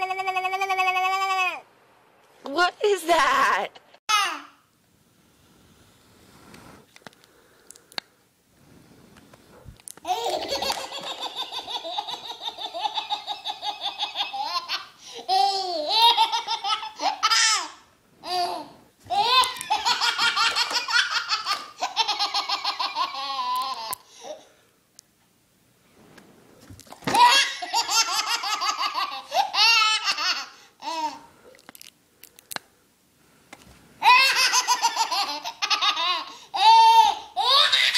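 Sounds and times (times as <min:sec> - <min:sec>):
baby laughing and squealing: 0:10.1 - 0:24.4, 0:27.1 - 0:31.2, 0:34.0 - 0:37.9.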